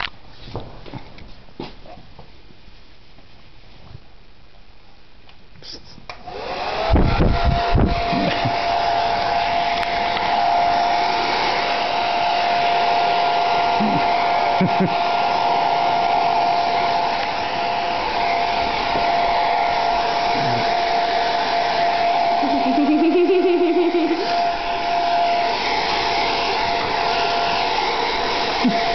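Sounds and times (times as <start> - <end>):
hair dryer motor whine: 6.1 - 28.9.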